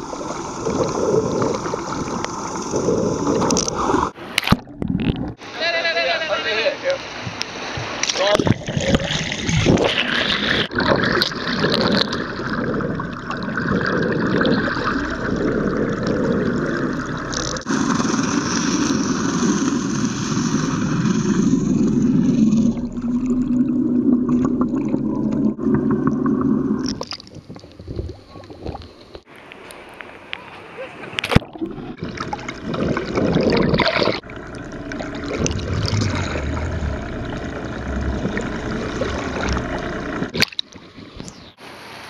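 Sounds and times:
water rushing and gurgling: 0:00.0 - 0:42.0
boat engine drone: 0:31.7 - 0:40.4.

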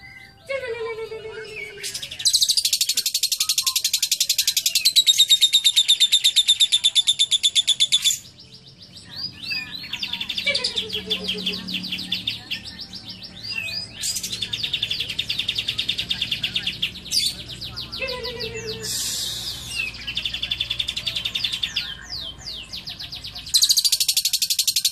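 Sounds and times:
lovebird chattering: 0:01.9 - 0:08.2, 0:22.9 - 0:24.9.

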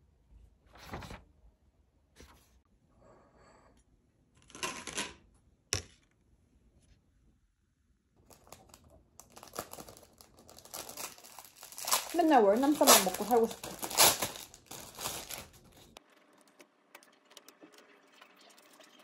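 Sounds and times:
book pages turning: 0:00.7 - 0:01.2, 0:08.2 - 0:16.0
plastic package crinkling: 0:08.2 - 0:16.0.

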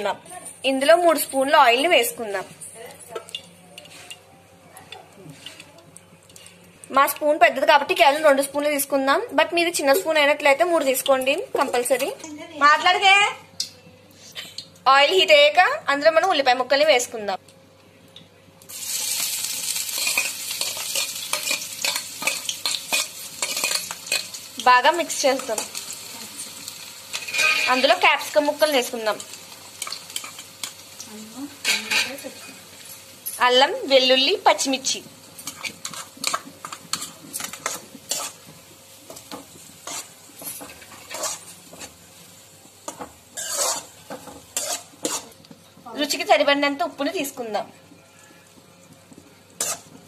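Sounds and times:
onions sizzling in oil: 0:18.6 - 0:50.0
spoon scraping and tapping pan: 0:35.4 - 0:42.0, 0:49.6 - 0:50.0.

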